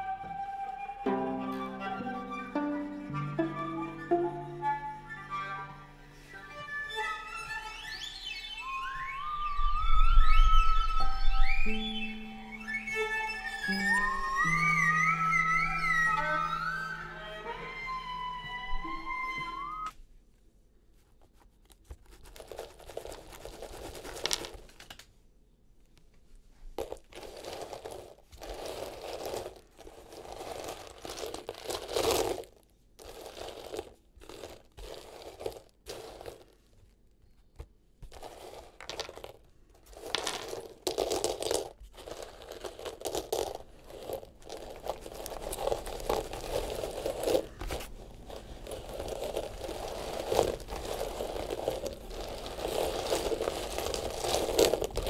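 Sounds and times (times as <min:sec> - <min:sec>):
dried beans rattling: 0:22.0 - 0:25.0, 0:26.7 - 0:37.4, 0:38.0 - 0:55.0.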